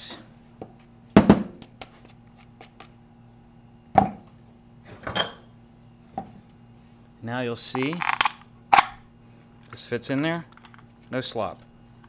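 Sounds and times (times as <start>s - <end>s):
parts clattering: 7.7s - 9.0s.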